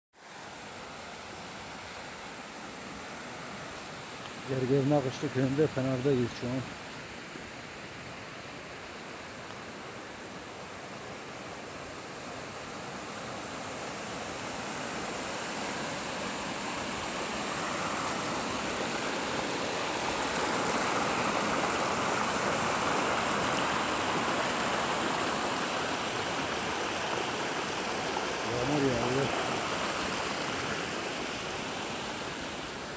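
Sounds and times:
stream water rushing: 0.2s - 32.9s.

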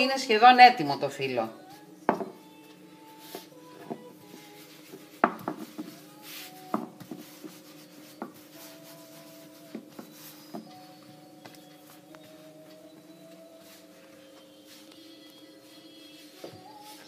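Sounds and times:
rolling pin rubbing on dough: 3.1s - 12.0s.

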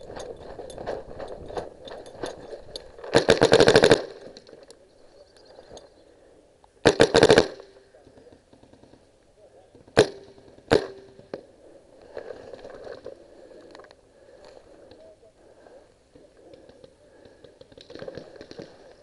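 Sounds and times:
gear scraping and rustling: 0.0s - 3.1s.

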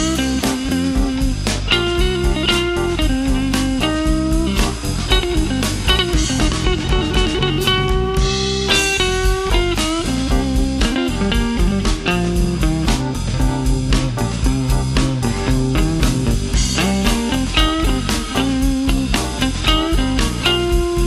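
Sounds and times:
bass: 0.0s - 21.0s
drum kit steady beat: 0.0s - 21.0s
electric guitar lead: 0.0s - 21.0s.

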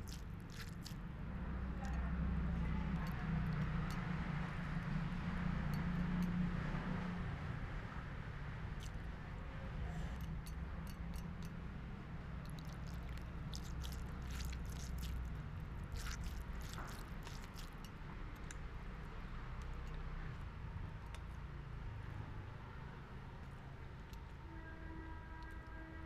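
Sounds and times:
person chewing: 0.0s - 1.0s, 12.5s - 18.7s.

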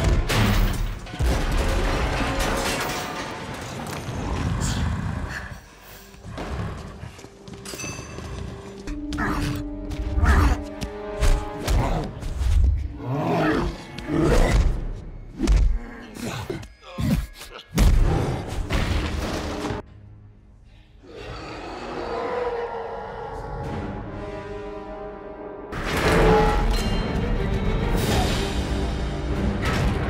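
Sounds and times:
orchestral music: 8.8s - 15.3s, 23.4s - 30.0s
monster roaring: 21.1s - 23.8s.

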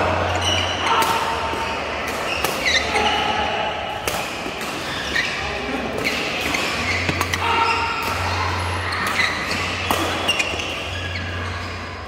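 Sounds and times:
shoes squeaking on court: 1.6s - 3.2s, 4.8s - 8.0s, 8.8s - 11.9s
racket hitting shuttlecock: 6.0s - 8.4s, 9.0s - 10.5s.

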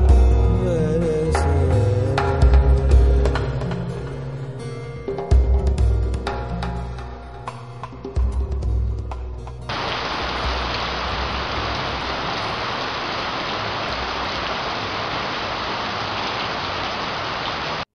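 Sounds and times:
steady rain hiss: 9.7s - 17.9s.

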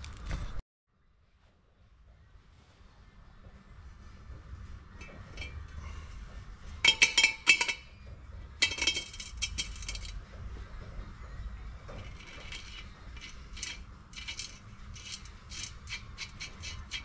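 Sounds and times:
metal fitting clinking against pot: 6.8s - 7.9s, 8.6s - 10.2s, 12.0s - 17.0s.

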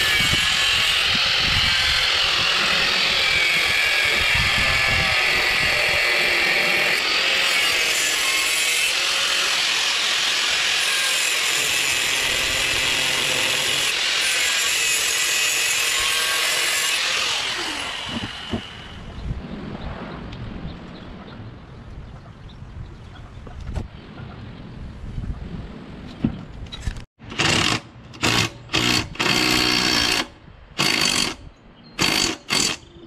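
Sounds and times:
angle grinder whining: 0.0s - 19.0s.

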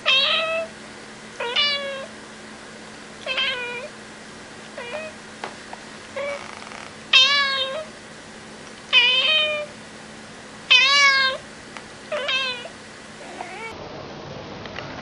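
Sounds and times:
cat meowing: 0.0s - 0.7s, 1.4s - 2.1s, 3.2s - 3.9s, 4.8s - 5.2s, 6.2s - 7.9s, 8.9s - 9.7s, 10.7s - 11.4s, 12.1s - 13.8s.

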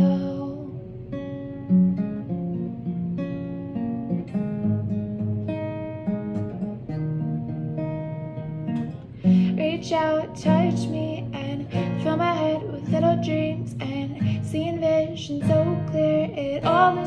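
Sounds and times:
acoustic guitar strumming: 0.0s - 17.0s.

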